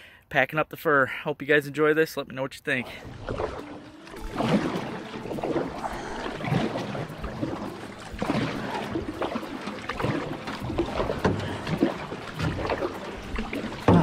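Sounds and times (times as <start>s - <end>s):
paddle splashing in water: 2.8s - 14.0s.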